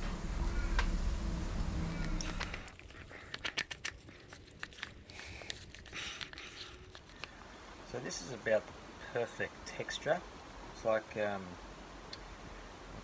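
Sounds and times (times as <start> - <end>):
low rumble: 0.0 - 2.7.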